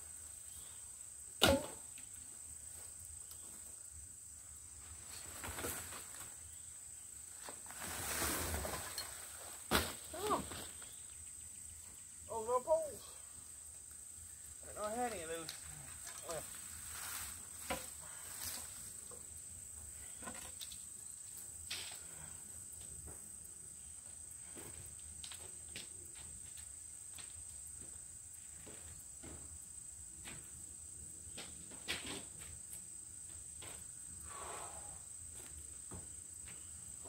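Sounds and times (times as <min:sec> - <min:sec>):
rustling: 0:04.8 - 0:11.1, 0:14.8 - 0:19.3
insects singing: 0:08.9 - 0:22.8.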